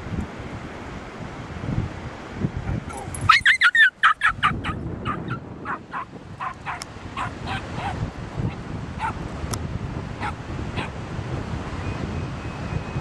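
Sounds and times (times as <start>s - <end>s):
wind on microphone: 0.0s - 13.0s
dog yelping: 2.8s - 8.0s, 10.2s - 10.9s.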